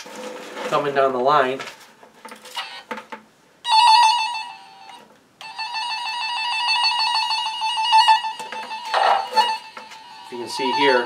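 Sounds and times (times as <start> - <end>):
high-pitched tracing tone: 3.7 - 11.0.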